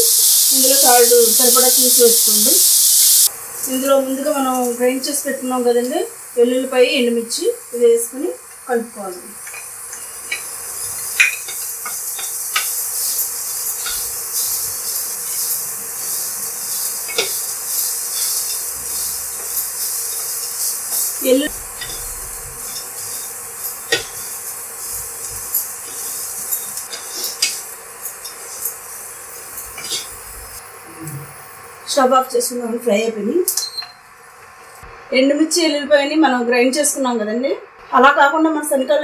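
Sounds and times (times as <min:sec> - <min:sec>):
chickpeas sizzling in oil: 0:00.0 - 0:32.1
spatula scraping a pan: 0:10.3 - 0:28.8, 0:29.5 - 0:30.2.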